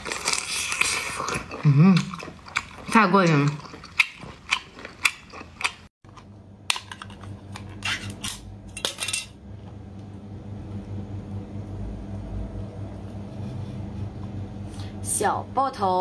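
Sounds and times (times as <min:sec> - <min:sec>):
low hum: 0:06.1 - 0:15.8.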